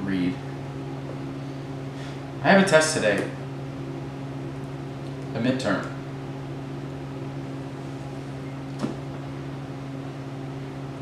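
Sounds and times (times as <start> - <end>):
low hum of room tone: 0.0 - 11.0.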